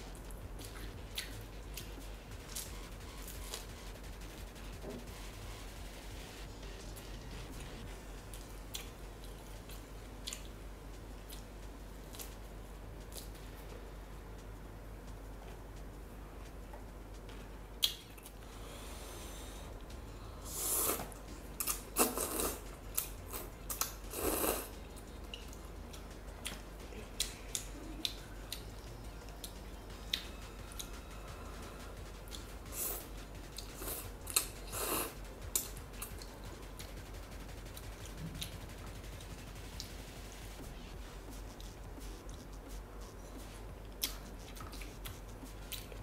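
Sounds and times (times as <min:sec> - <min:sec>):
person chewing: 0:00.6 - 0:02.7, 0:08.3 - 0:10.5, 0:20.5 - 0:26.6, 0:32.3 - 0:36.3, 0:41.3 - 0:46.0.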